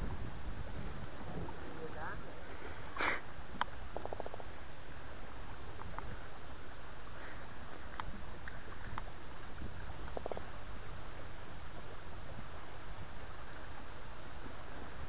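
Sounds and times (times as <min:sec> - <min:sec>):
wind: 0:00.0 - 0:15.0
faint ticks: 0:03.0 - 0:04.6, 0:05.7 - 0:06.3, 0:07.2 - 0:10.6.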